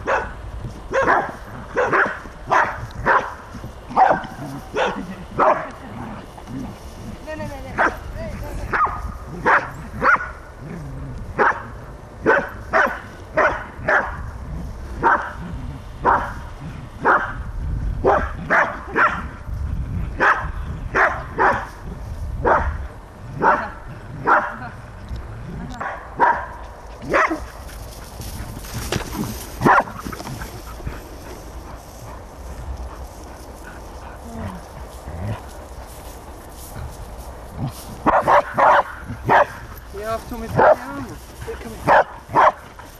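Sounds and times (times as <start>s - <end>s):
dog barking: 0.0s - 5.7s, 7.8s - 8.0s, 8.7s - 10.4s, 11.4s - 14.2s, 15.0s - 15.4s, 16.0s - 16.4s, 17.0s - 17.4s, 18.0s - 19.3s, 20.2s - 21.7s, 22.4s - 22.8s, 23.4s - 24.6s, 25.8s - 27.5s, 29.6s - 29.9s, 38.0s - 39.6s, 40.6s - 40.9s, 41.8s - 42.6s
steady low rumble: 0.0s - 42.9s
dog making low vocal sounds: 33.7s - 35.6s.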